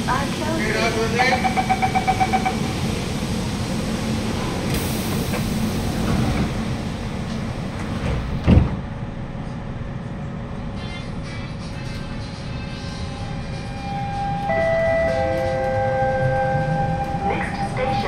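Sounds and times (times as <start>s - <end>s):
steady train car hum: 0.0s - 18.0s
train door closing chime: 1.3s - 2.7s, 14.4s - 18.0s
sliding doors shutting thud: 4.5s - 8.9s.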